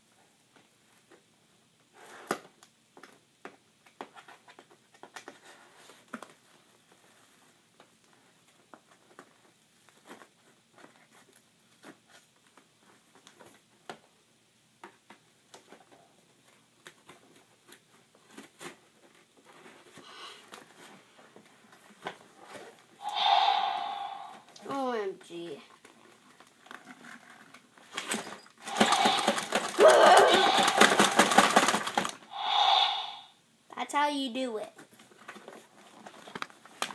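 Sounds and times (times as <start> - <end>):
toy packaging clicks and rustles: 25.8 - 32.2, 34.8 - 36.9.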